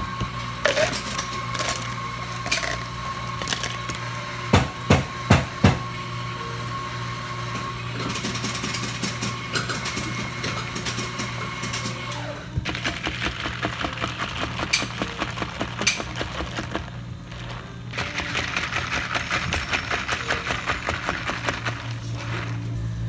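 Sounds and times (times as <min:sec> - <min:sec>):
ice cubes knocking into plastic cup: 0:03.4 - 0:03.9.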